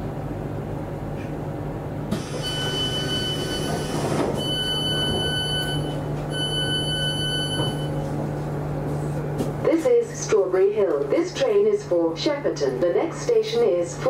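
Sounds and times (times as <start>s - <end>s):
train humming: 0.0s - 14.0s
high door warning beeps: 2.2s - 8.0s.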